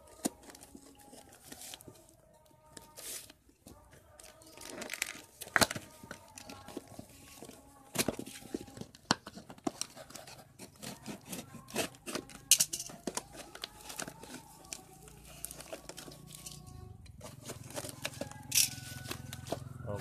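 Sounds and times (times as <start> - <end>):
cardboard tearing and crinkling: 4.3 - 16.5
knife cutting cardboard: 9.3 - 14.6.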